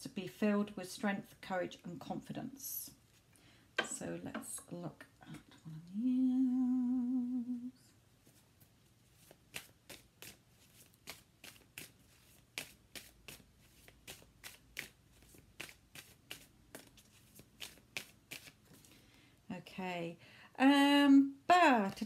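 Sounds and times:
cards being shuffled: 9.1 - 19.0.

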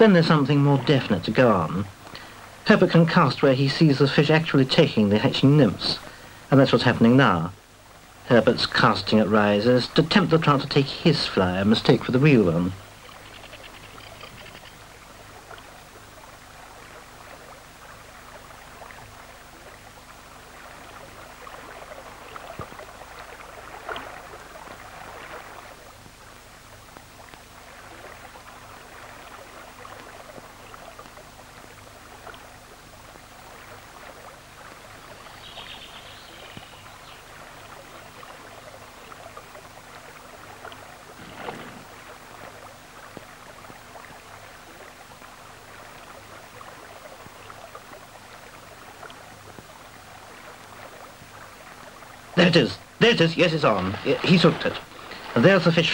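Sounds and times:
river water rushing over stones: 37.4 - 55.9.

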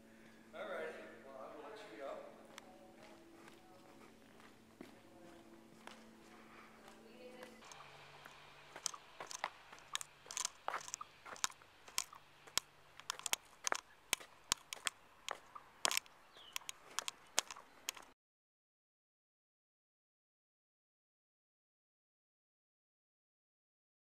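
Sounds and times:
crunching footsteps: 2.3 - 18.2.

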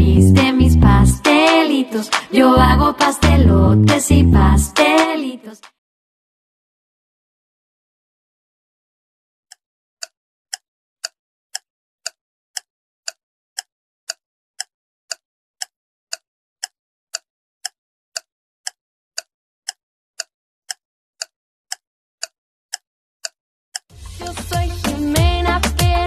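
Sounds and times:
timer ticking: 0.0 - 5.2, 10.0 - 23.9.

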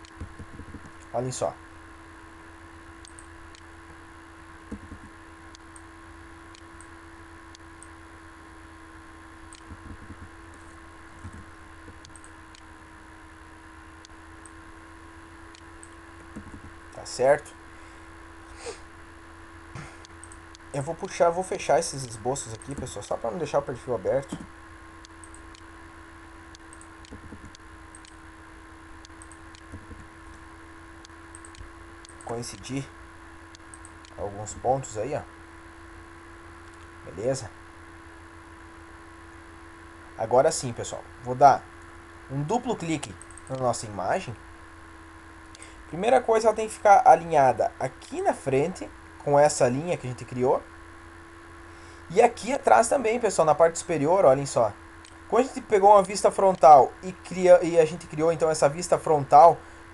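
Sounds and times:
computer mouse clicking: 0.0 - 1.1, 3.0 - 3.7, 4.7 - 5.8, 9.5 - 10.6, 11.2 - 12.6, 15.5 - 16.8, 20.1 - 20.6, 22.0 - 23.0, 24.2 - 25.6, 26.5 - 28.2, 29.0 - 30.4, 31.0 - 32.7, 43.1 - 43.7
microphone hum and hiss: 0.0 - 2.9, 3.7 - 6.4, 7.2 - 12.2, 16.2 - 25.0, 25.7 - 29.0, 29.6 - 59.9
faint computer mouse clicks: 31.3 - 32.7.

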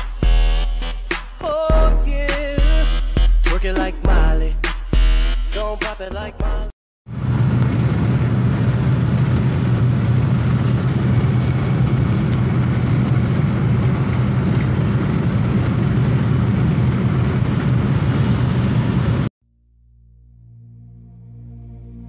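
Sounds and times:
road and engine drone: 7.1 - 19.3.

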